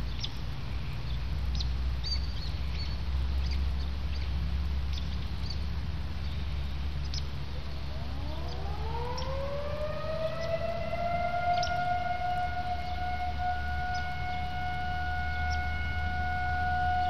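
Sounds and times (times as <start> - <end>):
warning siren winding up: 7.6 - 17.0.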